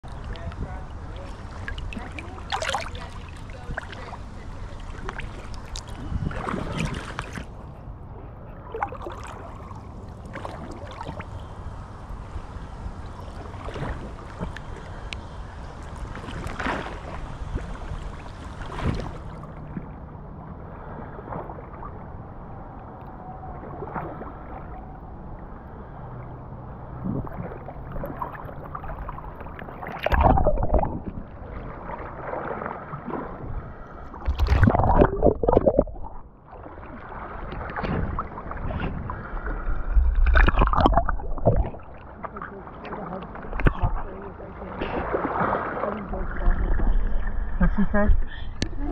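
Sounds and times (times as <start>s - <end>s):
water sloshing and lapping: 0.0s - 48.9s
feet kicking water splashes: 4.9s - 7.5s, 34.2s - 42.2s.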